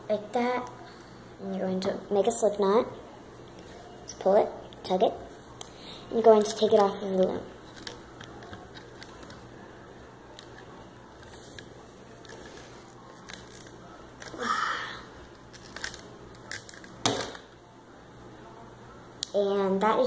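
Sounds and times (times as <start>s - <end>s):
rubber bands rustling: 6.2s - 9.5s, 10.4s - 14.5s, 15.1s - 17.2s.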